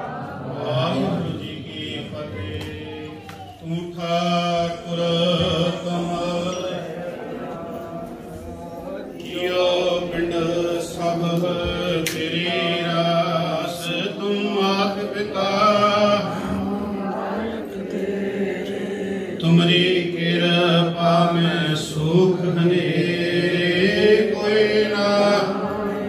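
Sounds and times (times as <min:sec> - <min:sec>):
man chanting into a microphone: 0:00.6 - 0:06.7, 0:09.2 - 0:16.8.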